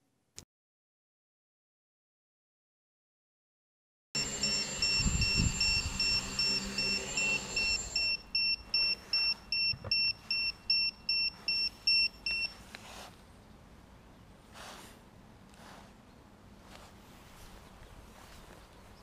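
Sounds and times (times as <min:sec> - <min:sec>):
drone motors humming: 0:04.2 - 0:09.3
phone timer alarm beeping: 0:04.2 - 0:12.6.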